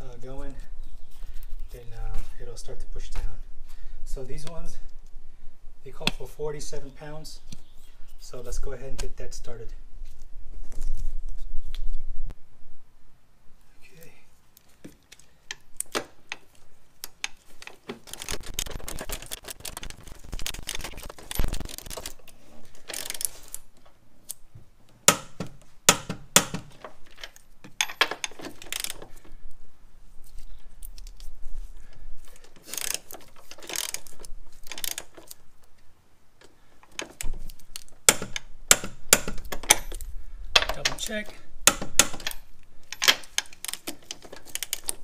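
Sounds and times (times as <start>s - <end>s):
hand ratchet clicking: 32.6s - 34.1s.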